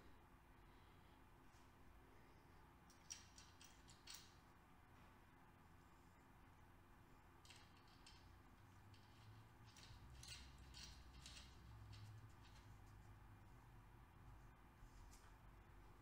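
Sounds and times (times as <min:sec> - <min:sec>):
metallic clicks and scrapes: 0:02.9 - 0:04.4, 0:07.4 - 0:13.1.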